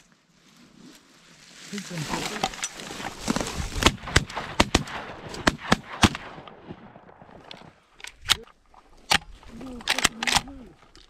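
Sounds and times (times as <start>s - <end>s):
shotgun blasts: 3.8s - 7.2s.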